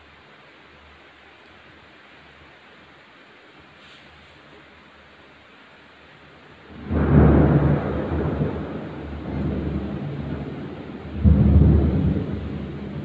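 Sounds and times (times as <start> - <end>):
thunder rumbling: 6.7 - 13.0.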